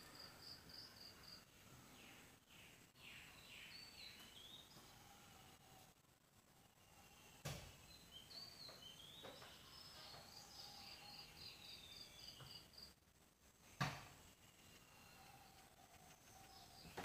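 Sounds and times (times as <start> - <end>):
faint bird calls: 14.4 - 17.0.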